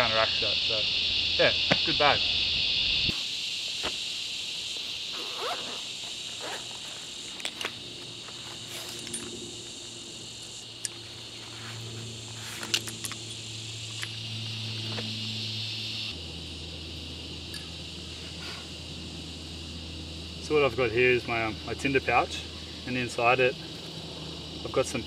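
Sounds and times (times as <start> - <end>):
insect chorus: 0.0 - 25.0
small gear clicking and rustling: 8.5 - 9.4.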